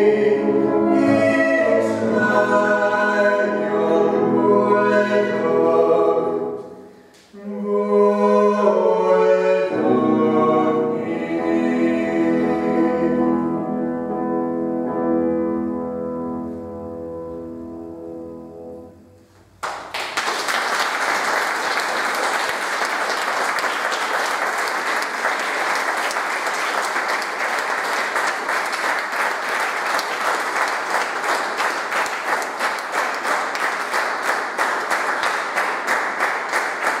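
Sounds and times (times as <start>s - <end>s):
piano chord: 12.0s - 19.5s
audience applause: 19.6s - 37.0s.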